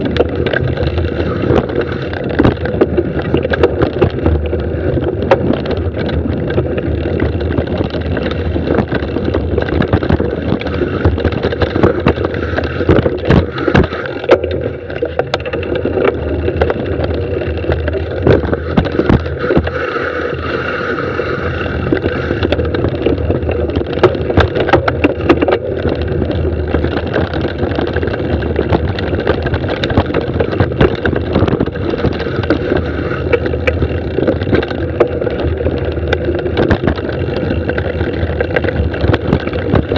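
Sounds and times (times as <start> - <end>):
bike knocking and rattling: 0.0 - 39.9
bike tyres rumbling over dirt: 0.0 - 39.9.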